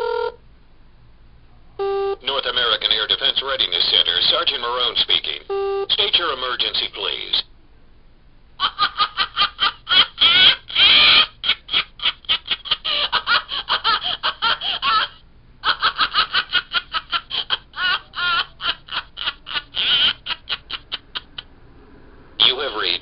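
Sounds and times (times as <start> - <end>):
high-pitched laughter sound effect: 8.6 - 21.5.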